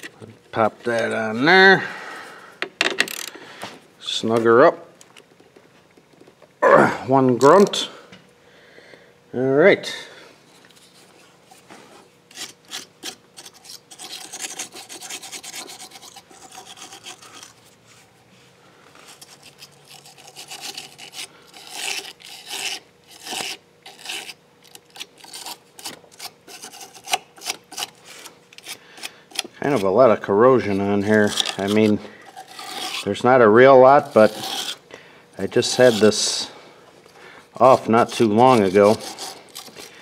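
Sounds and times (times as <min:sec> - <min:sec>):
wire brush scraping metal: 0:19.0 - 0:34.8, 0:35.4 - 0:36.6, 0:37.6 - 0:39.9.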